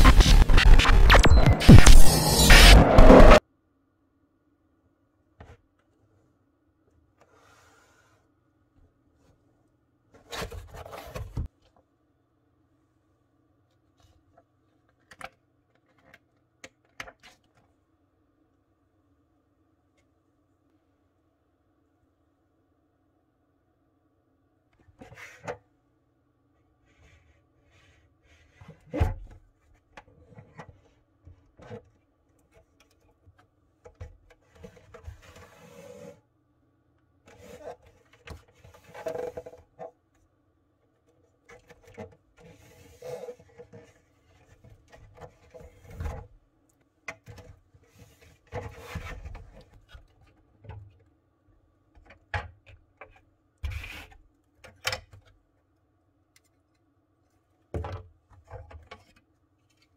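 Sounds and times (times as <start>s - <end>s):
plastic parts clicking and scraping: 14.7s - 17.7s.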